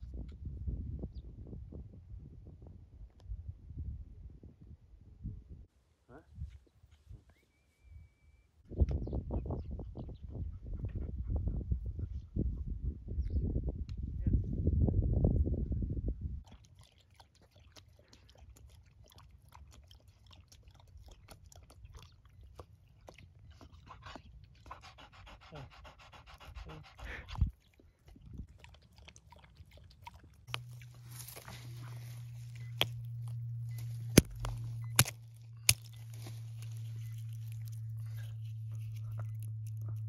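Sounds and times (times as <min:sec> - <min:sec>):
dog panting: 0:17.5 - 0:30.4
steady low hum: 0:30.1 - 0:40.0
sharp clicks: 0:32.6 - 0:40.0.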